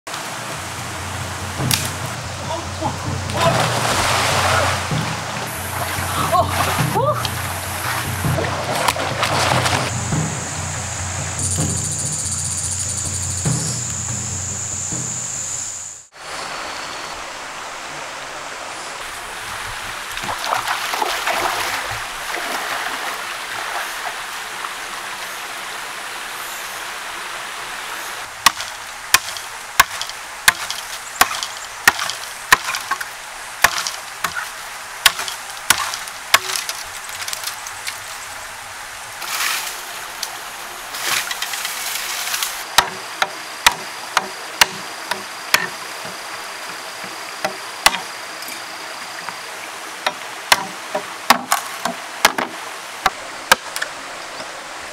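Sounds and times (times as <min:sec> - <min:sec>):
bamboo leaves rustling: 0:00.2 - 0:16.0, 0:28.1 - 0:48.8
machete chopping bamboo: 0:01.6 - 0:02.0, 0:28.4 - 0:34.4, 0:35.0 - 0:37.6, 0:42.7 - 0:46.2, 0:47.0 - 0:48.1, 0:50.1 - 0:53.7.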